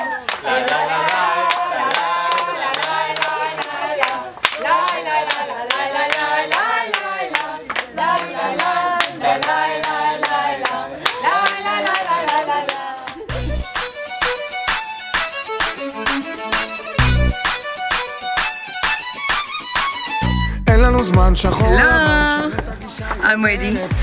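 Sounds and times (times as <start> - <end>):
group of people singing: 0.0 - 13.3, 21.2 - 24.0
hands clapping in rhythm: 0.0 - 20.0.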